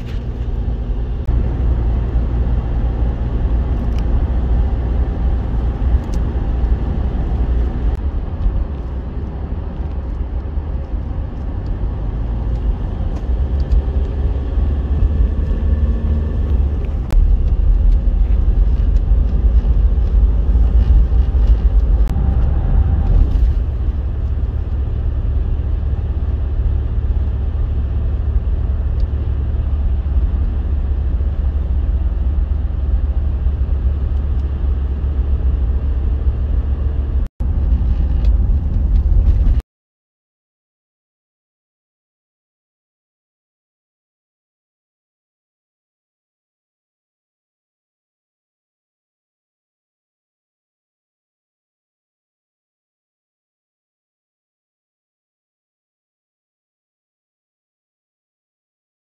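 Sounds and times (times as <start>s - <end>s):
car tyres and engine rumble: 0.0s - 39.6s.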